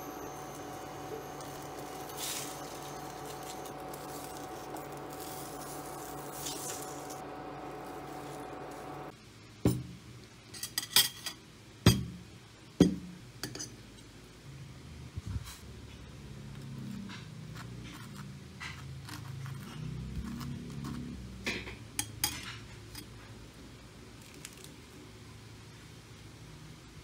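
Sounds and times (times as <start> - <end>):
induction hob humming: 0.0 - 9.1.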